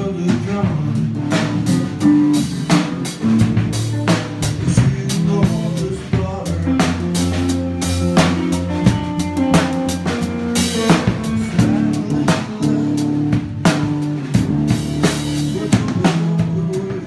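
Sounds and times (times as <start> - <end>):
bass and guitar low notes: 0.0 - 17.0
drum kit steady beat: 0.0 - 17.0.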